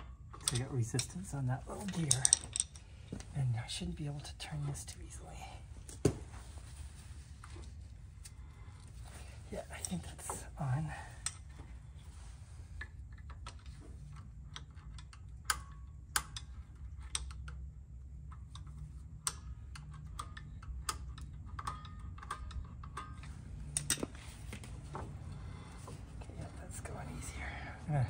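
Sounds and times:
low steady hum: 0.0s - 28.0s.

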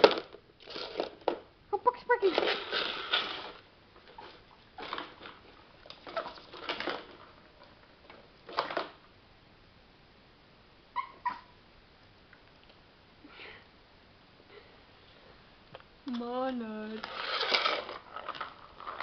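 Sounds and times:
small dog yipping: 10.9s - 11.6s
small dog barking: 11.0s - 11.6s.

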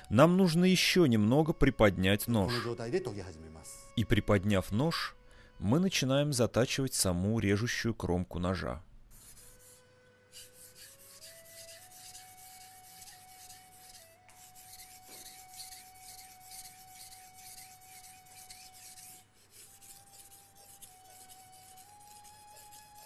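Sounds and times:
knife scraping on whetstone: 9.2s - 23.0s.

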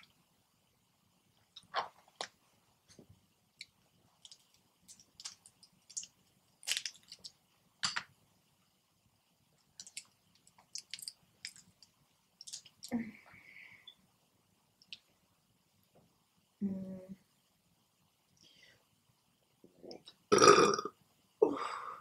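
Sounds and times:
crab shells cracking: 3.6s - 8.0s, 9.8s - 12.9s.

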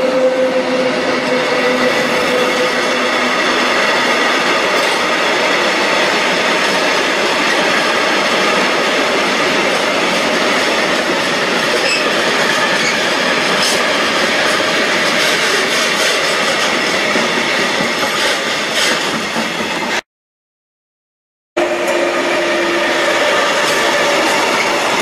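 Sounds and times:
train wheels rolling on rails: 0.5s - 20.0s, 21.7s - 25.0s
high-pitched wheel squeal: 11.7s - 12.1s.

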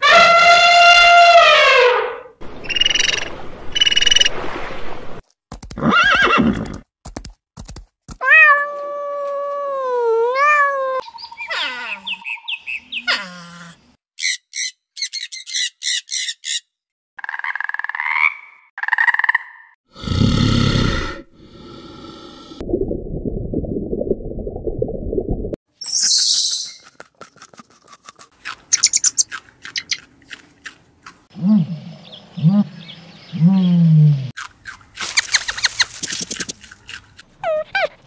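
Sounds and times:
high chirps: 25.8s - 26.8s.

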